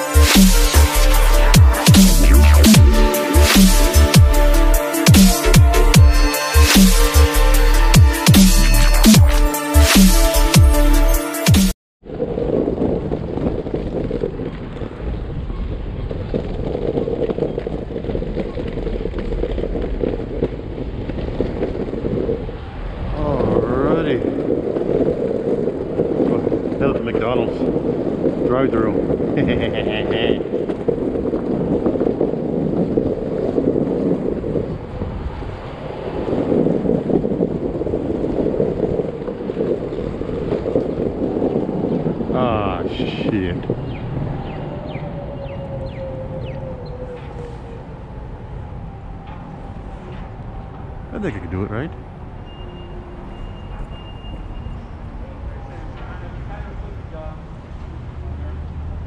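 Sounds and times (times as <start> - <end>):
skateboard wheels rumbling: 12.0 - 59.0
wind buffeting microphone: 12.0 - 59.0.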